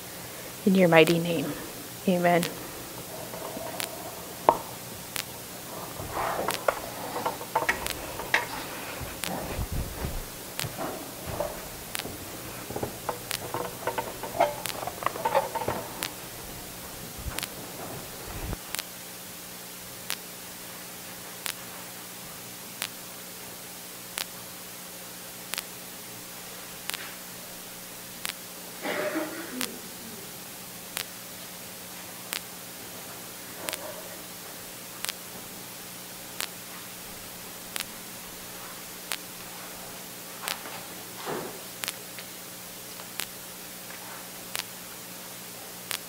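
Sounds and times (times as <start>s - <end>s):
faint low hum: 0.0s - 18.7s
steady hiss: 0.0s - 46.0s
faint rustling: 1.5s - 18.6s
sharp clicks and ticks: 2.3s - 9.4s, 11.4s - 16.3s
low thumps: 2.5s - 18.6s.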